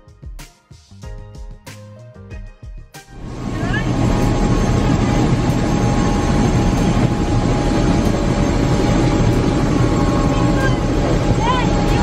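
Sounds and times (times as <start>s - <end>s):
helicopter engine and rotor: 3.2s - 12.0s.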